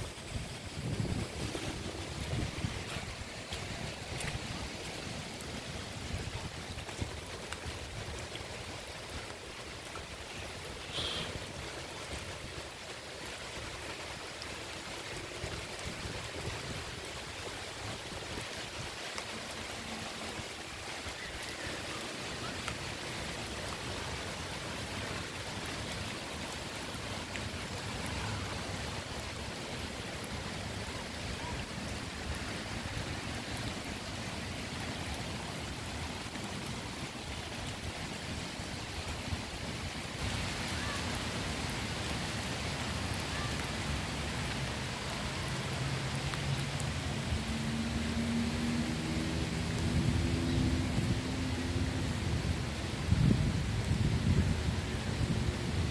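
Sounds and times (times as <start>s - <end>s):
steady rain on grass and path: 0.0s - 55.9s.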